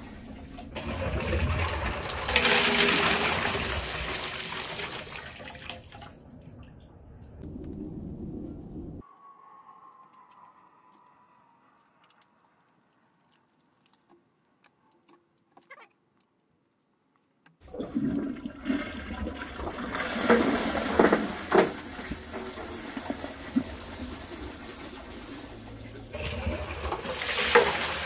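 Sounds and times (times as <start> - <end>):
toilet flushing: 0.0 - 6.3, 17.6 - 28.0
toilet refilling water: 0.0 - 7.0, 17.6 - 28.0.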